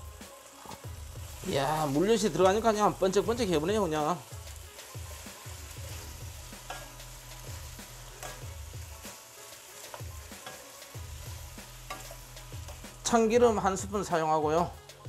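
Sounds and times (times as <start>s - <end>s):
food sizzling in a frying pan: 0.0s - 15.0s
spatula knocking and scraping pan: 5.8s - 8.6s, 9.8s - 12.9s.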